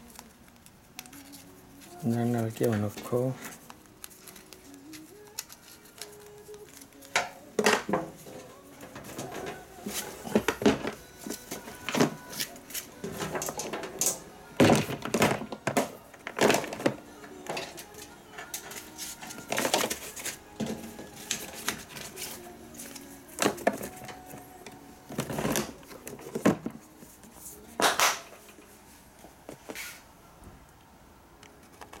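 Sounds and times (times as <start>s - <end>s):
handling knocks and clicks: 13.0s - 26.8s.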